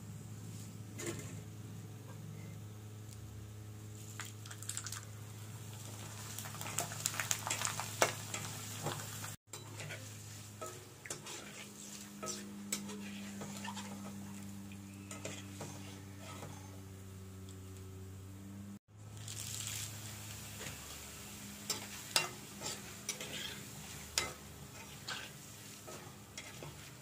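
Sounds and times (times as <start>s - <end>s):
food sizzling in hot oil: 4.0s - 16.5s, 19.0s - 27.0s
metal spoon clinking and scraping pan: 9.5s - 14.4s, 15.0s - 16.8s, 21.6s - 27.0s.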